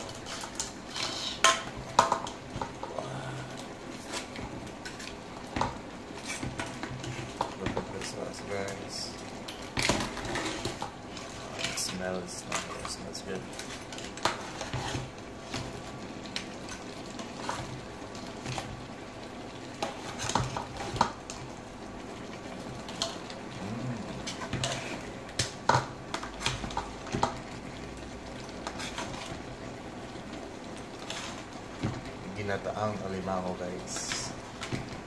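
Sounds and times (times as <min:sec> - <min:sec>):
utensil clinking and scraping pot: 0:00.0 - 0:03.0, 0:09.8 - 0:15.7, 0:24.1 - 0:27.4
simmering sauce sizzle: 0:00.0 - 0:35.0.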